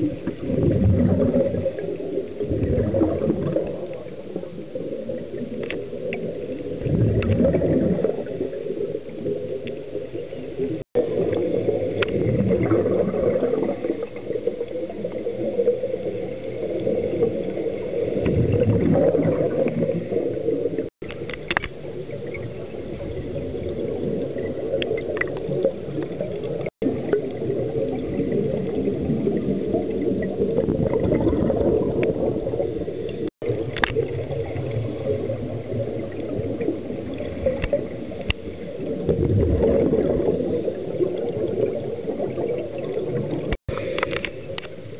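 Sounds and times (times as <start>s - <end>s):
underwater exhaust bubbles gurgling: 0.0s - 44.9s.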